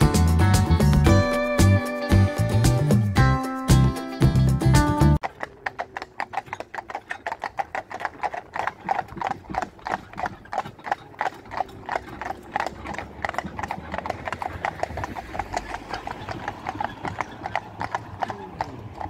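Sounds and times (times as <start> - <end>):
horse hooves on asphalt: 5.1 - 19.0.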